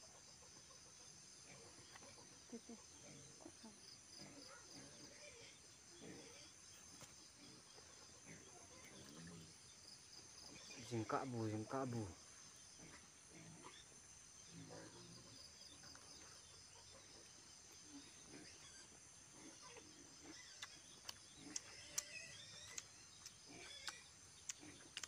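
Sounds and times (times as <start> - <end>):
insects chirring: 0.0 - 25.0
people chewing: 19.4 - 25.0.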